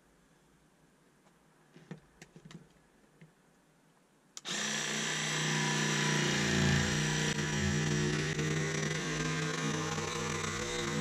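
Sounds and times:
jigsaw cutting wood: 4.4 - 11.0.

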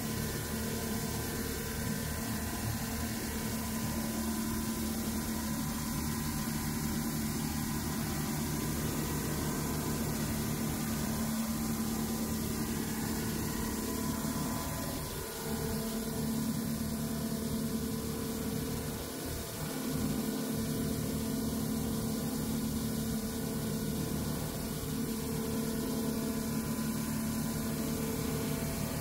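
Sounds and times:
boat engine droning: 4.9 - 22.2.

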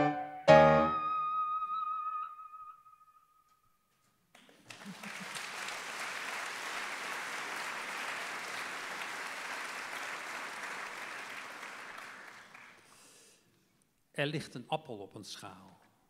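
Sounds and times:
held music note: 0.0 - 2.9
audience applauding: 4.4 - 13.1.

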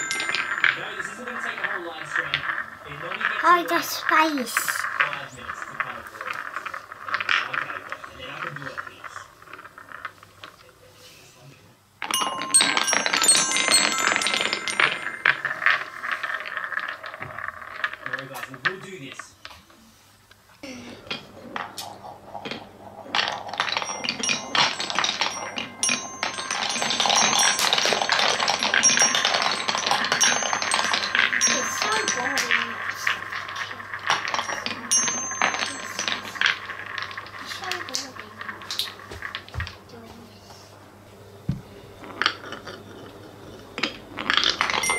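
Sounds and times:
ringing chime tones: 0.0 - 1.3, 12.1 - 16.1, 23.6 - 32.8, 34.2 - 36.9
balls clicking on metal plates: 0.0 - 10.6, 12.0 - 19.6, 21.0 - 39.8, 42.0 - 44.9
balls rolling on wooden track: 0.0 - 11.0, 12.0 - 19.8, 20.9 - 40.6, 41.5 - 44.9.

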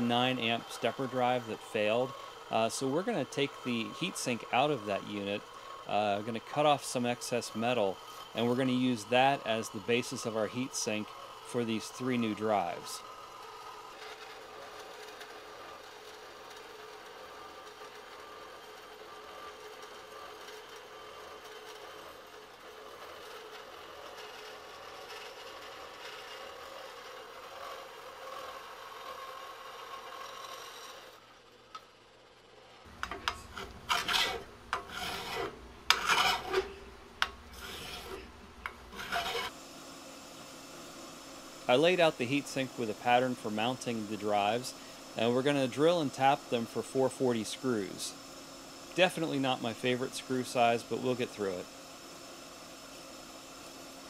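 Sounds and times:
drill boring into aluminum: 0.0 - 31.2, 32.9 - 54.0
bandsaw cutting aluminum: 0.0 - 31.7, 32.8 - 54.0.

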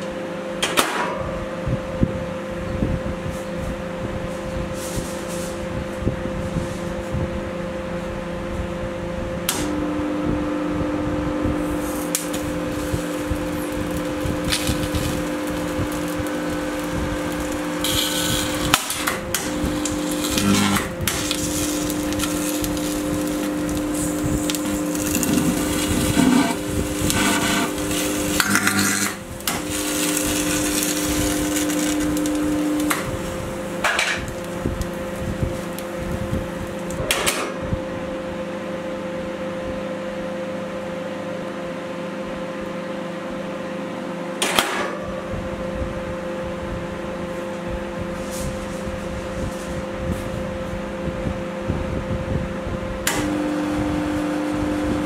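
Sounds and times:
microwave electrical hum: 0.0 - 55.0
circuit board crackling and snapping: 12.0 - 33.4.

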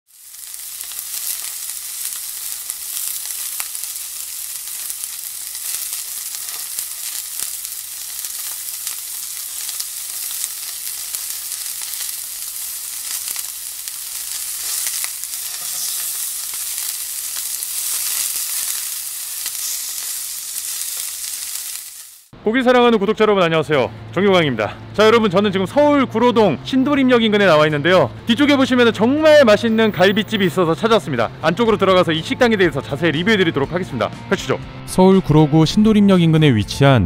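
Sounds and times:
beef sizzling on a grill: 0.1 - 22.3.

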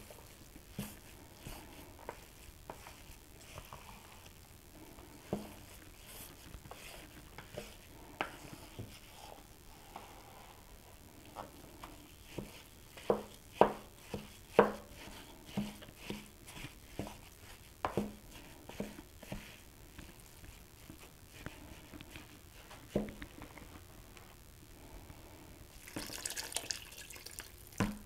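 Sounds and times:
spoon stirring moist dressing: 0.0 - 23.7, 25.7 - 28.0
wooden spoon knocking mixing bowl: 12.3 - 16.3.

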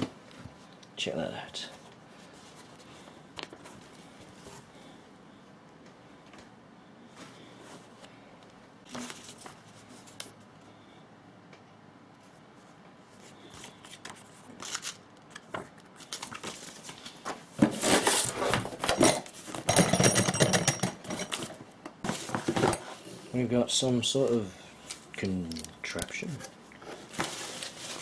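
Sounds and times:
cardboard rustling and scraping: 8.8 - 10.3, 15.5 - 19.6, 21.3 - 23.2, 26.2 - 28.0.

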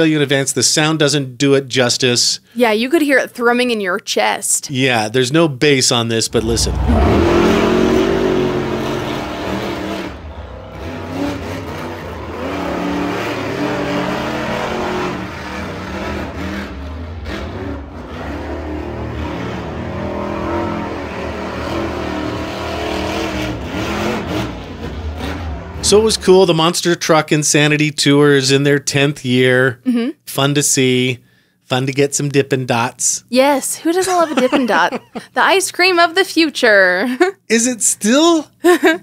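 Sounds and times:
monster truck engines revving: 6.2 - 27.2.

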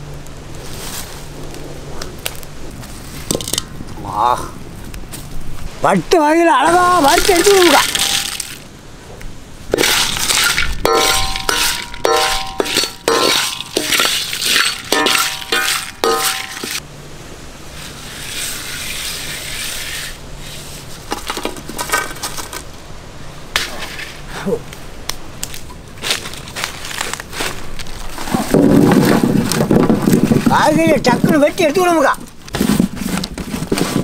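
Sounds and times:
iron pan clinking: 7.8 - 8.6, 9.8 - 16.8.

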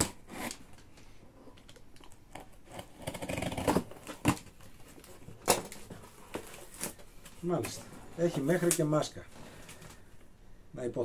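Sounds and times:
knife cutting box tape: 0.0 - 0.6, 2.3 - 4.5
cardboard flaps rustling: 3.2 - 10.0.

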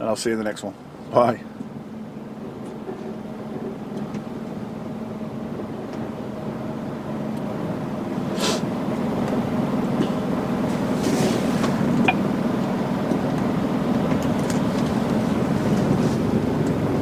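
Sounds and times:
lorry engine and road noise: 0.0 - 17.0
short hiss: 8.3 - 8.7.

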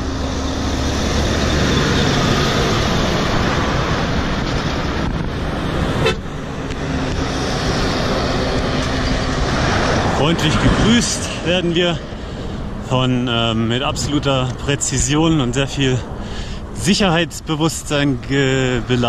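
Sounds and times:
heavy lorries passing: 0.0 - 19.0
lorry horn toot: 6.0 - 6.3.

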